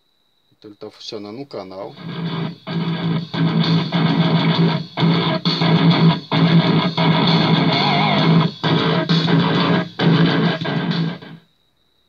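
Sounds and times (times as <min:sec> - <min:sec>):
guitar rock music through speaker: 0:01.9 - 0:11.4.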